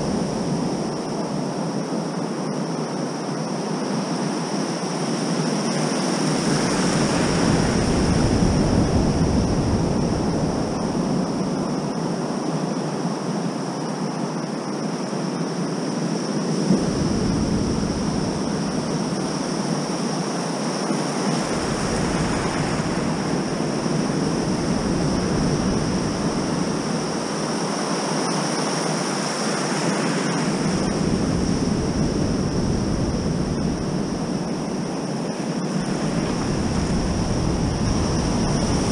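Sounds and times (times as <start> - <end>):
wind buffeting microphone: 6.2 - 12.2, 16.5 - 28.1, 30.4 - 38.9
ocean surf breaking: 21.0 - 27.7.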